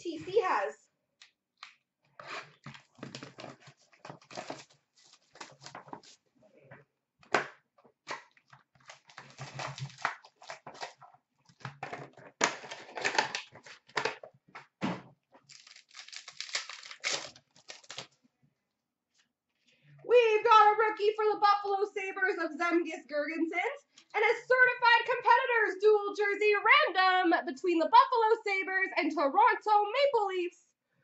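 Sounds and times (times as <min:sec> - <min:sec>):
cards shuffling: 0:01.6 - 0:06.2, 0:07.3 - 0:11.0, 0:15.4 - 0:18.1
wrappers tearing and crinkling: 0:02.6 - 0:06.2, 0:08.3 - 0:11.0, 0:12.4 - 0:14.1, 0:15.4 - 0:18.2.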